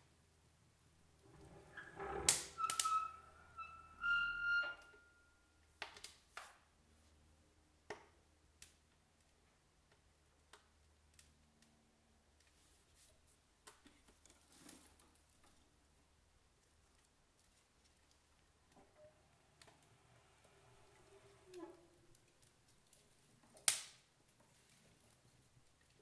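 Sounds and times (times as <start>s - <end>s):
short squeaks: 1.3s - 5.5s
wood fire crackling: 14.0s - 26.0s.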